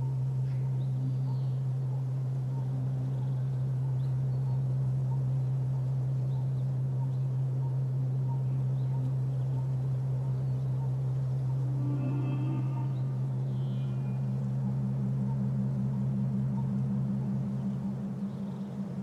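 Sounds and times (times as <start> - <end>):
low musical drone: 0.0 - 19.0.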